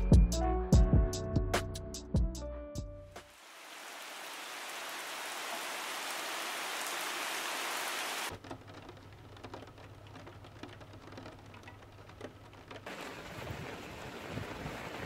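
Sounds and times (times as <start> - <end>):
rain falling on puddle: 3.2 - 15.0
rain through window glass: 3.3 - 15.0.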